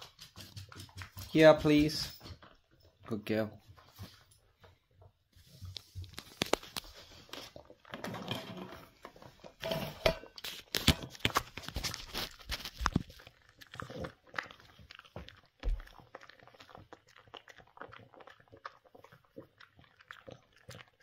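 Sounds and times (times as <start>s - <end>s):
dog crunching a hard treat: 6.0s - 9.6s, 10.4s - 21.0s.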